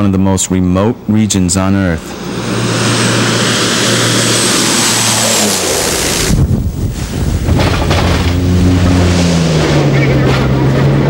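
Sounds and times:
faint high whine: 0:00.0 - 0:07.4
propeller plane engine droning: 0:00.0 - 0:11.0.

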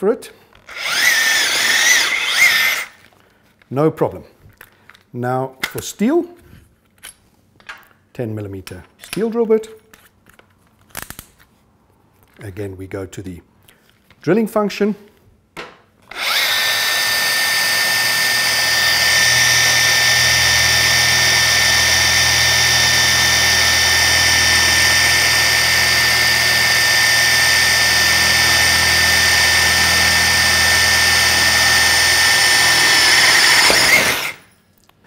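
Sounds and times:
drill motor whine: 0:00.7 - 0:03.0, 0:16.1 - 0:34.5.

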